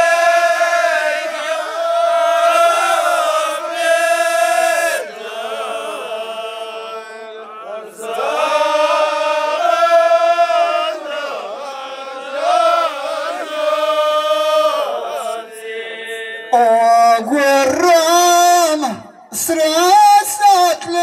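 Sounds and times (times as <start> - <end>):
men chanting in unison: 0.0 - 21.0
man's voice through microphone: 16.4 - 21.0.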